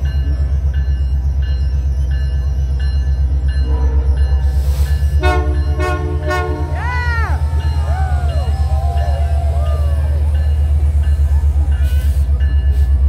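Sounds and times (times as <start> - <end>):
diesel locomotive engine rumble: 0.0 - 13.0
locomotive bell ringing: 0.0 - 13.0
train horn blasts: 3.6 - 4.5, 5.1 - 7.5.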